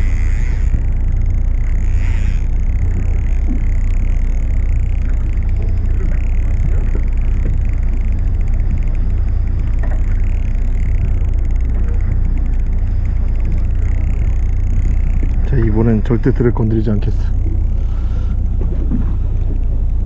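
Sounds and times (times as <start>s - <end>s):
boat engine rumbling: 0.0s - 20.0s.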